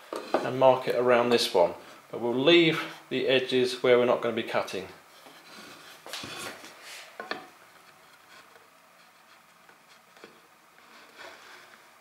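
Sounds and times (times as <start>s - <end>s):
cutting wheel scratching wood: 7.8s - 11.8s.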